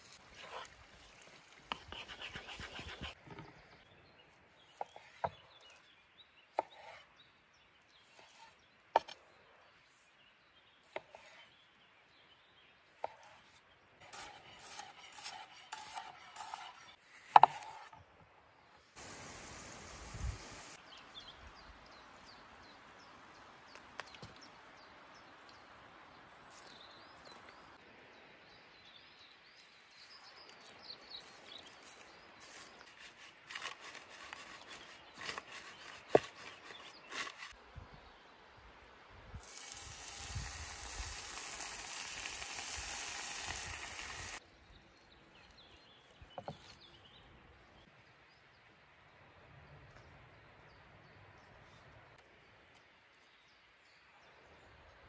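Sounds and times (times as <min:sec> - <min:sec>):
knife chopping on wooden board: 0:14.2 - 0:17.9
food sizzling in pan: 0:19.0 - 0:20.8, 0:39.4 - 0:44.4.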